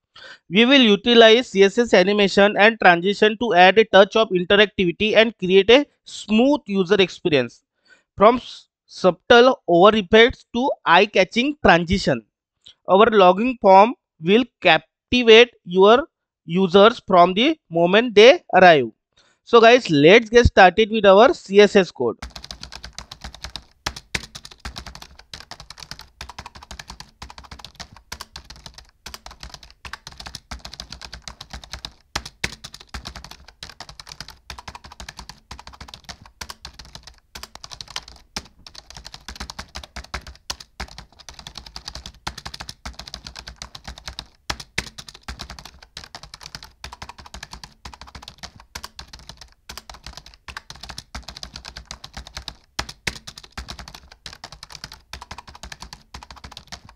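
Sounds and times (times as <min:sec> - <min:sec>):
keyboard typing: 0:22.2 - 0:56.9.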